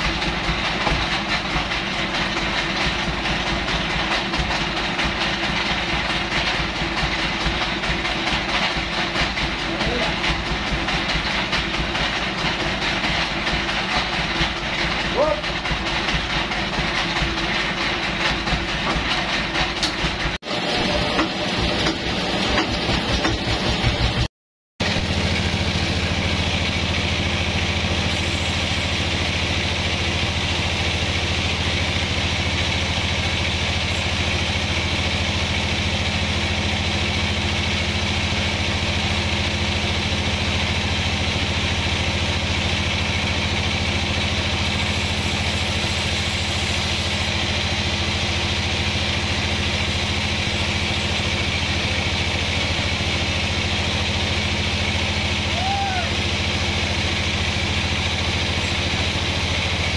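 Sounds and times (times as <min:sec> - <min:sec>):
band saw cutting log: 0:11.1 - 0:24.2, 0:24.9 - 0:39.1, 0:42.7 - 0:55.5, 0:56.1 - 0:59.9.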